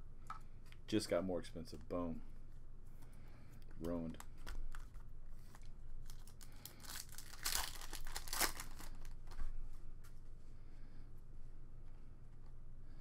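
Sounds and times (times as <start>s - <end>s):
foil wrapper crinkling: 4.4s - 9.3s
foil pack tearing: 6.1s - 9.1s.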